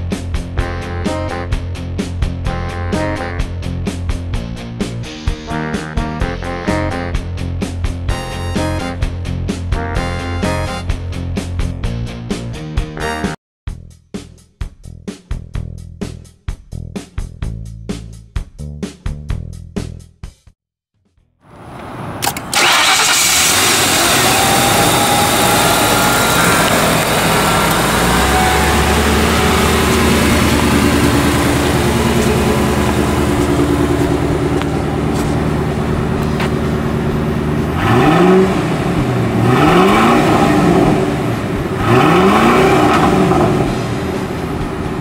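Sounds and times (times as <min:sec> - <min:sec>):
car engine starting and idling: 0:21.5 - 0:45.0
engine revs blipped: 0:22.0 - 0:45.0.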